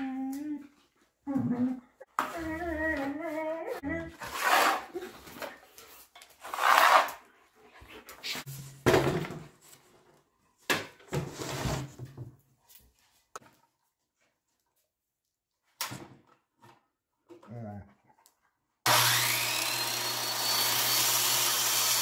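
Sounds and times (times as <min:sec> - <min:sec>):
board scraping against board: 0:04.2 - 0:05.2, 0:06.4 - 0:07.2, 0:11.1 - 0:12.1.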